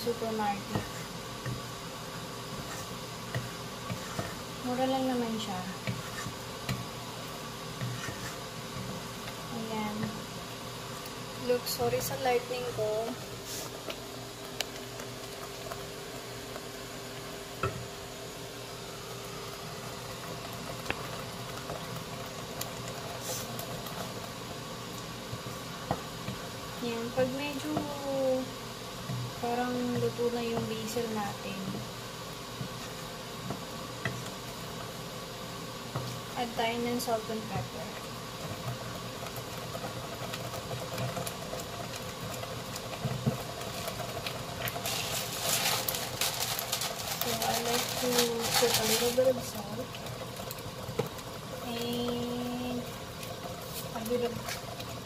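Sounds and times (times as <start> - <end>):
mechanical hum: 0.0 - 55.0
sauce simmering with bubbling hiss: 0.0 - 55.0.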